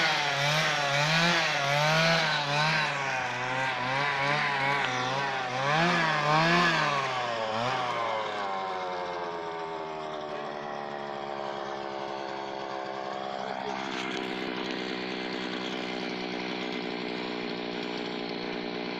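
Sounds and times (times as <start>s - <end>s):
brush cutter engine revving: 0.0s - 18.9s.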